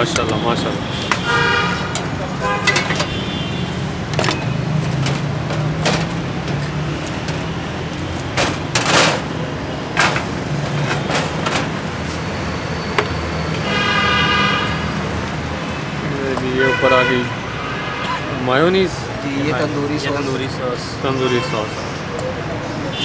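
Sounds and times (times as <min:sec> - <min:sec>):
traffic hum: 0:00.0 - 0:23.0
vehicle horn: 0:00.8 - 0:03.8, 0:13.6 - 0:15.0, 0:16.6 - 0:18.2.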